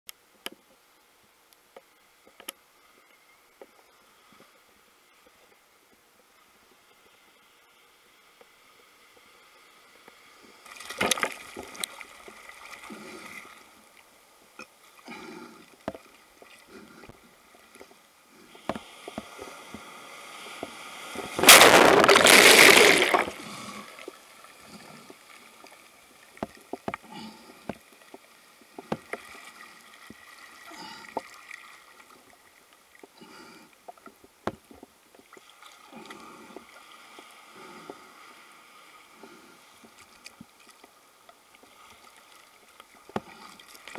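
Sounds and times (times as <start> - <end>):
surf sloshing and splashing: 10.2 - 13.8, 18.5 - 32.6
loud rush of water: 21.2 - 23.9.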